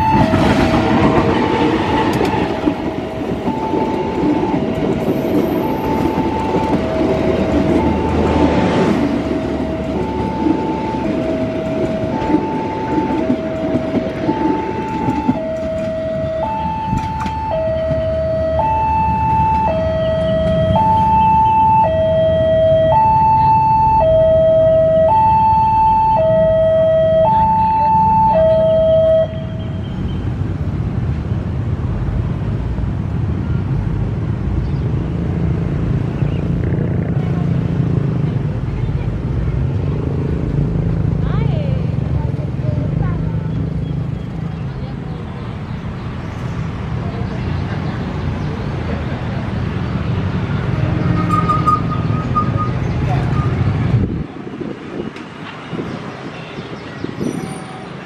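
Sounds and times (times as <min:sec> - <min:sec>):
passing train rumble and clatter: 0:00.0 - 0:58.0
level crossing two-tone alarm: 0:03.1 - 0:29.8.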